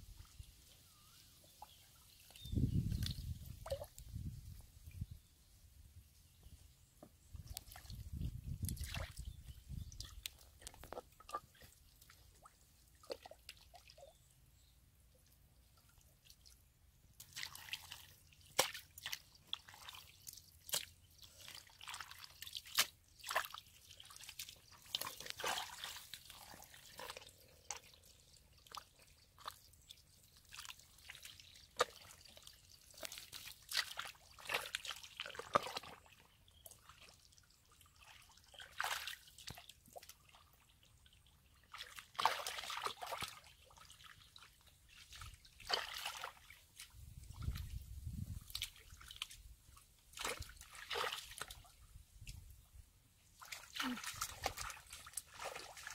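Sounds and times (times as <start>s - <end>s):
hands squelching in mud: 17.2s - 36.2s, 41.7s - 47.7s, 50.1s - 51.7s, 53.4s - 55.9s.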